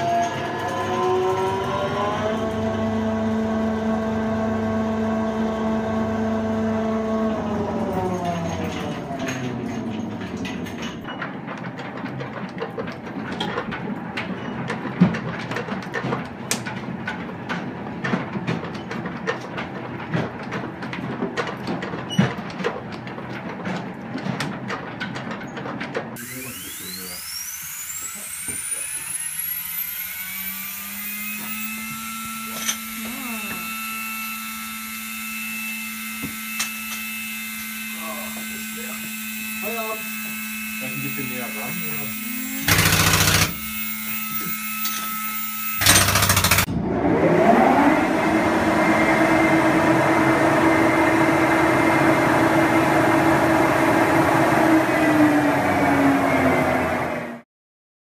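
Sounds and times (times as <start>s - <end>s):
chain conveyor clanking: 0.0s - 2.7s, 7.7s - 26.1s, 40.9s - 46.7s
machine whine rising in pitch: 0.0s - 10.8s, 26.2s - 57.4s
low machine hum: 31.0s - 45.8s.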